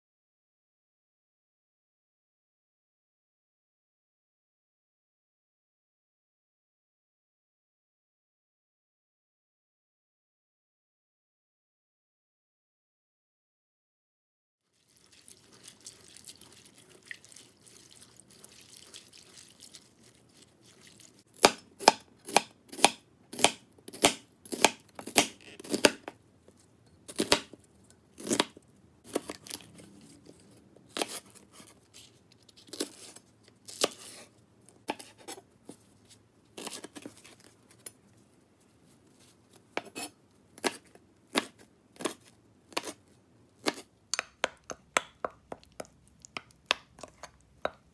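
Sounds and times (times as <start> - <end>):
knife strikes on cutting board: 21.4 - 26.0.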